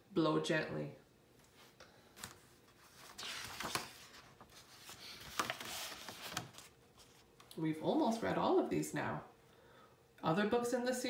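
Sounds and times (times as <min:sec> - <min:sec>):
paper page turning: 0:02.2 - 0:07.3.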